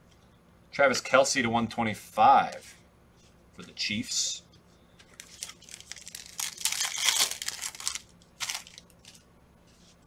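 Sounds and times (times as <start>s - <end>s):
wrapper crinkling: 5.0s - 9.3s.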